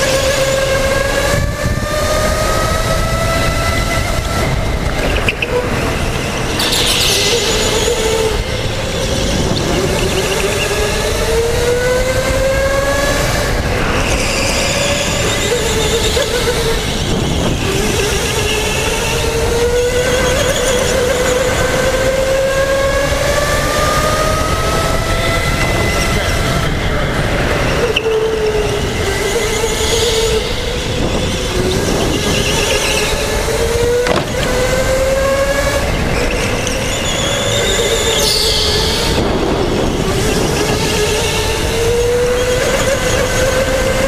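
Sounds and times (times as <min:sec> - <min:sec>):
electric go-kart motor whining: 0:00.0 - 0:44.0
brief high squeal: 0:06.4 - 0:08.3, 0:36.2 - 0:39.1.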